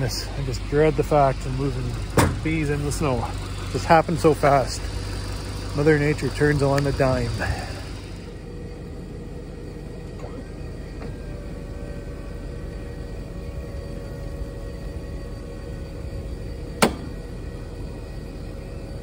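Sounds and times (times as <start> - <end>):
crane machinery rumble: 0.0 - 19.0
faint steady whine: 0.0 - 19.0
sharp knock of load: 16.8 - 17.1.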